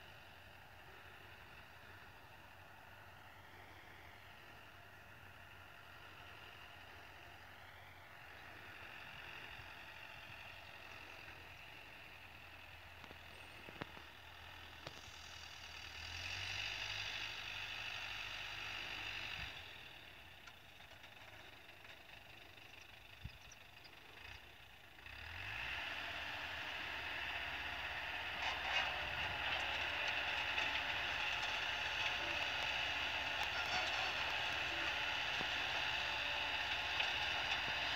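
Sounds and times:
tractor and spreader clattering: 0.0 - 37.9.

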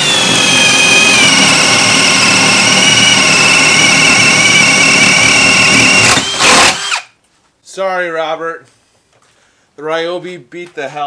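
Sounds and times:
drill boring through wood: 0.0 - 7.1.

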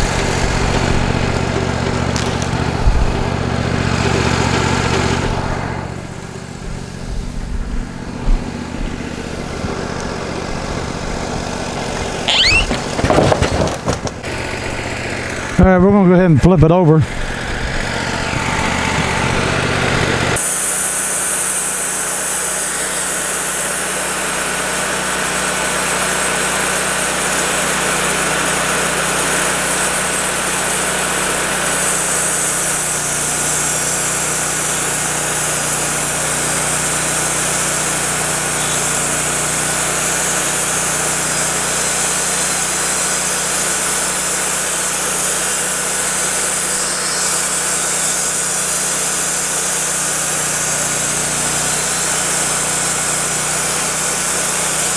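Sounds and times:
sawmill engine running: 0.0 - 54.9
hydraulic whine: 11.9 - 13.1, 31.9 - 54.9.

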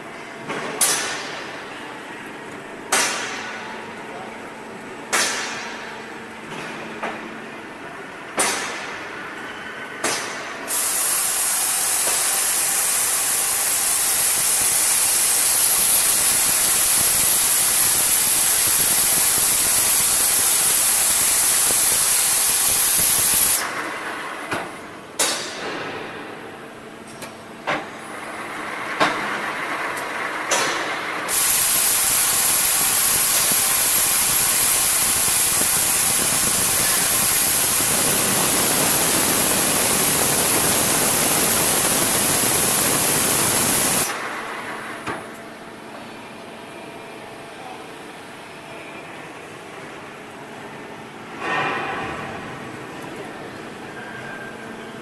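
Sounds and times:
loud steady hiss: 10.7 - 23.7, 31.2 - 44.3.

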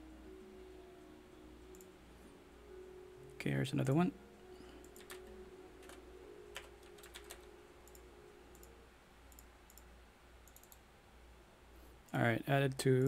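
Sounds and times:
low steady hum: 0.0 - 13.0
computer mouse clicks: 4.8 - 6.0, 6.6 - 10.8.

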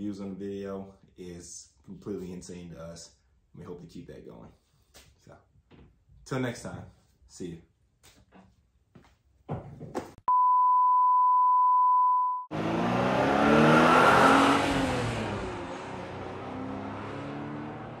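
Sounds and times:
steady high beep: 10.3 - 12.5
car engine revving: 12.5 - 18.0.

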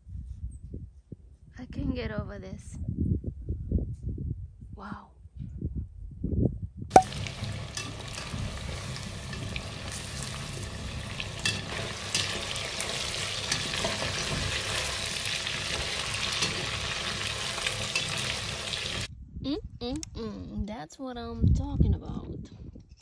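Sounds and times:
oil sizzling deep-frying chicken: 6.9 - 19.1.

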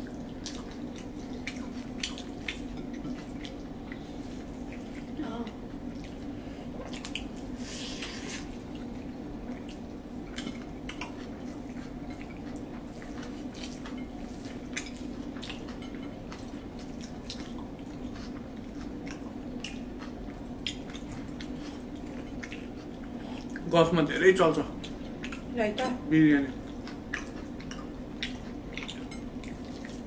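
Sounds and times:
chewing: 0.0 - 23.7, 24.8 - 25.9, 26.5 - 30.0
steady low hum: 0.0 - 30.0.

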